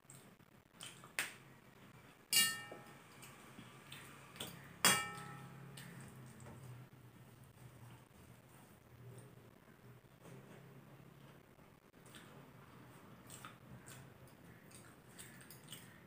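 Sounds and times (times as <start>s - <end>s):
steel plate clinking: 2.3s - 3.0s, 4.9s - 5.6s.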